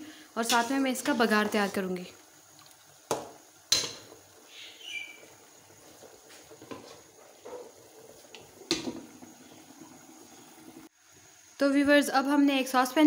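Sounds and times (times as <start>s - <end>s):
metal pot and lid knocking: 3.1s - 4.1s
metal pot lid clanking: 3.7s - 4.2s.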